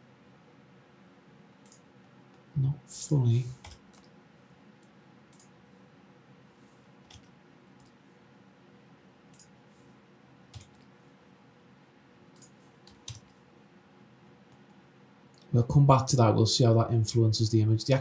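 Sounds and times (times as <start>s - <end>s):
mouse and keyboard clicks: 9.3s - 9.6s.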